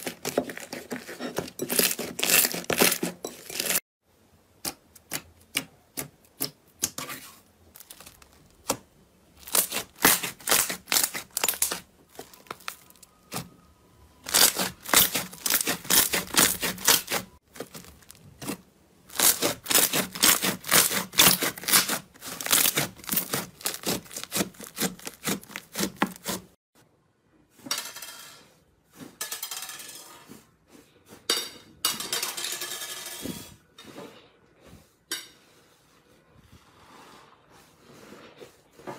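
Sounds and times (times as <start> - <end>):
crackly slime squishing: 0.0 - 3.8, 7.6 - 13.5, 14.2 - 26.5.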